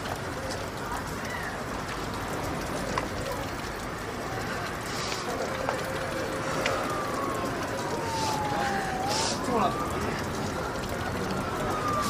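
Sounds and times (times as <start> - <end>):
faint clicks: 0.0 - 9.1
street ambience hiss: 0.0 - 12.0
distant emergency siren: 2.4 - 12.0.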